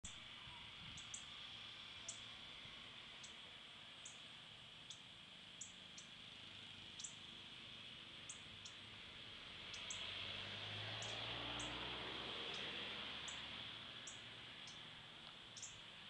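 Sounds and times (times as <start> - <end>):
steady high hiss: 0.1 - 16.0
bird chip calls: 0.9 - 1.3, 7.0 - 7.2, 9.7 - 10.1, 15.5 - 15.8.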